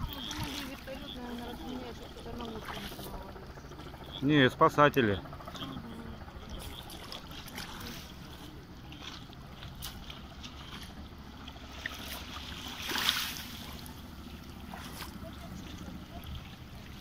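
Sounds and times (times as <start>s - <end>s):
small sea waves: 0.0s - 17.0s.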